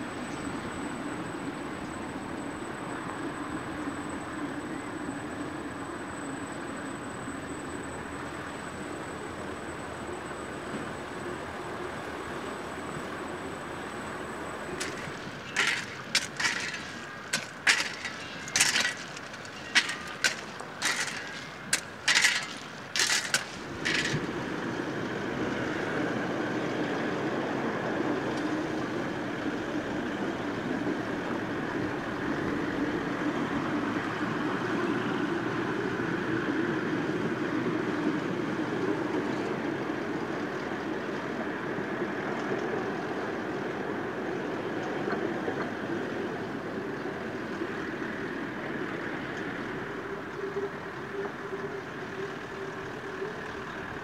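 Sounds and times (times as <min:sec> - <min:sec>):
hand tools scraping ballast stones: 0:14.8 - 0:24.4.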